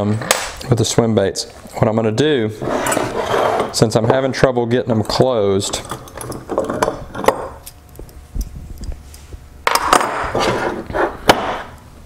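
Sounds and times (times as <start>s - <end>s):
metal block scraping on wood: 2.6s - 3.8s.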